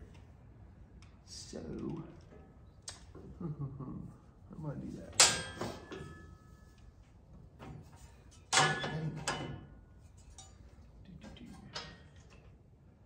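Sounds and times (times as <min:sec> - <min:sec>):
metal panels clanking: 0:05.1 - 0:06.3, 0:07.6 - 0:12.6.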